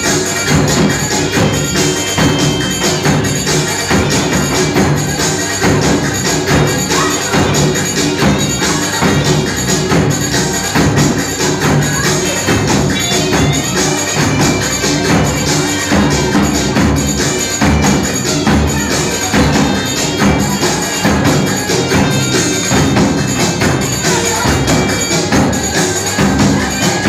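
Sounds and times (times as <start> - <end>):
loud music: 0.0 - 27.0.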